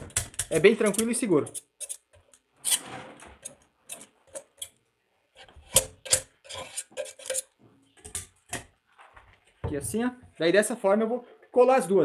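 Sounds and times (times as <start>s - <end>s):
knife blade scraping metal tube: 0.5s - 4.7s, 5.4s - 7.5s.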